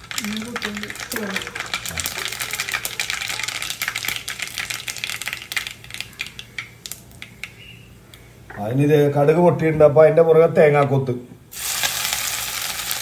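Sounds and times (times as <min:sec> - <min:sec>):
mustard seeds popping in oil: 0:00.0 - 0:08.6.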